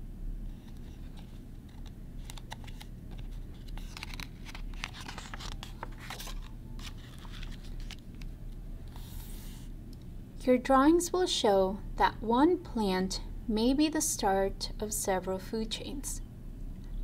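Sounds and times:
steady low hum: 0:00.0 - 0:17.0
paper pages rustling: 0:00.6 - 0:09.7.

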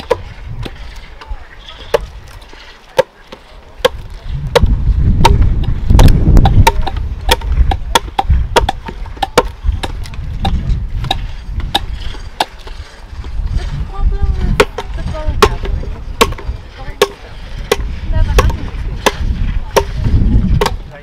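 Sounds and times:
adzes chopping wood: 0:00.0 - 0:12.9, 0:14.5 - 0:21.0
low rumble: 0:04.0 - 0:20.6.

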